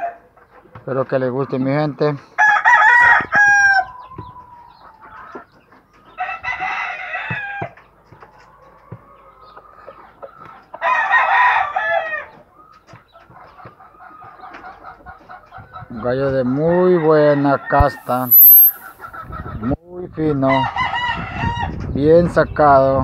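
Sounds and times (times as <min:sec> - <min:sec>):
rooster crowing: 0:02.4 - 0:03.9, 0:10.8 - 0:12.3.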